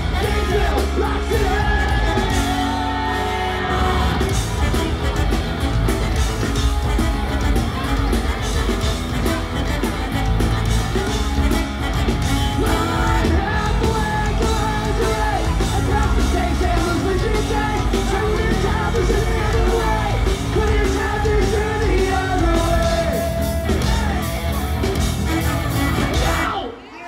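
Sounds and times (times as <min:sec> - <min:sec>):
person singing: 0:00.0 - 0:05.3, 0:11.0 - 0:27.0
bass guitar: 0:00.0 - 0:26.6
electric guitar: 0:00.0 - 0:26.6
drums: 0:00.0 - 0:27.0.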